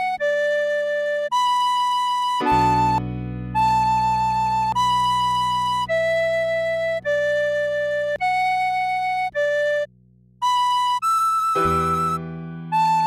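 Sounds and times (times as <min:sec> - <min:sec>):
tin whistle slow melody: 0:00.0 - 0:13.0
soft low accompanying chord: 0:02.4 - 0:10.2, 0:11.6 - 0:13.0.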